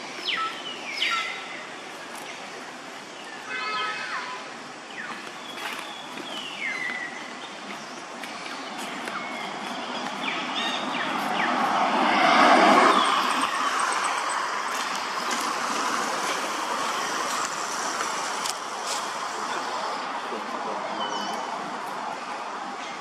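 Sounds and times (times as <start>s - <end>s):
road vehicle passing: 7.2s - 23.0s.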